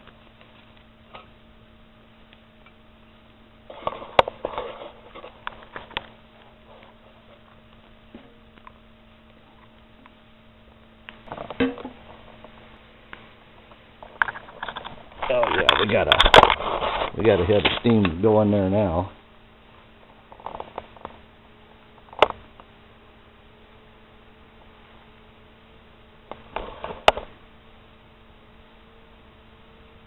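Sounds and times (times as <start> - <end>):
faint steady hum: 0.0 - 30.0
wood sticks knocking and clattering: 14.0 - 16.6.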